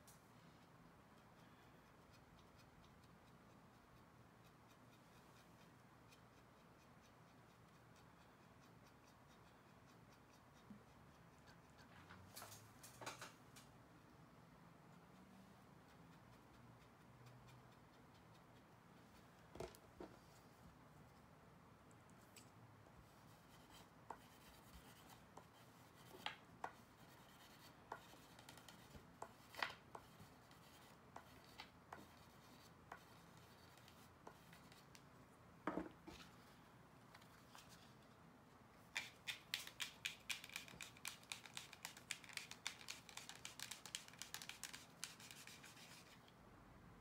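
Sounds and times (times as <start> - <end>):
scratchy rubbing strokes: 38.9 - 46.2.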